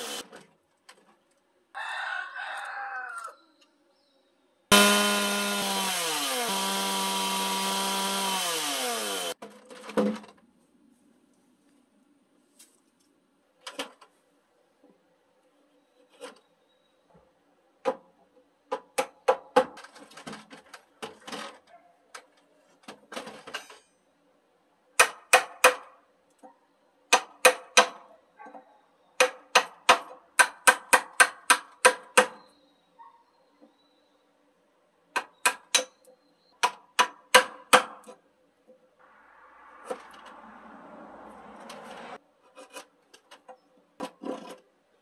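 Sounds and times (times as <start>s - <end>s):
chisel struck into wood: 36.6s - 38.0s.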